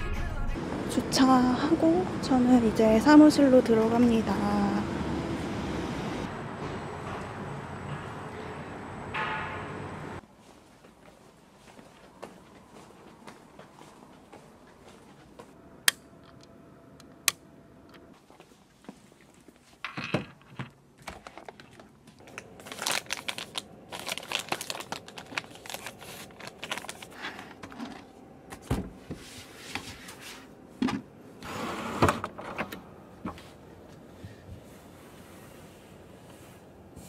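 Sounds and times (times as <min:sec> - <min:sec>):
cloth rustling and crinkling: 0:21.0 - 0:28.1.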